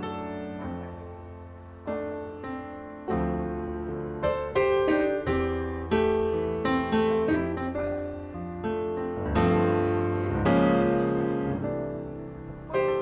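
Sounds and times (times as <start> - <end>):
piano notes and chords: 0.0 - 13.0.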